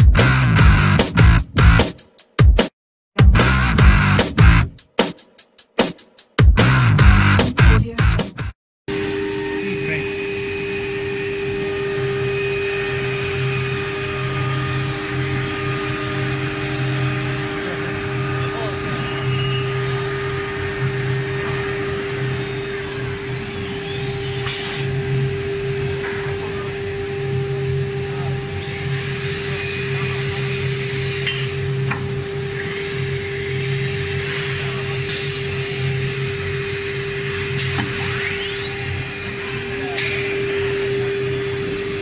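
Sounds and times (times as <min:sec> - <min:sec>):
router spindle whine: 0:08.9 - 0:42.0.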